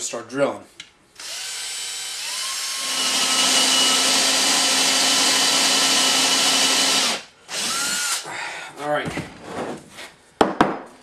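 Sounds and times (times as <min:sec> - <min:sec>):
cordless drill boring into wood: 0:01.2 - 0:08.2.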